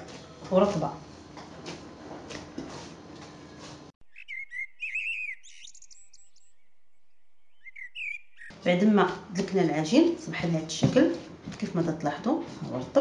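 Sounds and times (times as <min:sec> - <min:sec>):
bird chirps: 0:04.0 - 0:08.6.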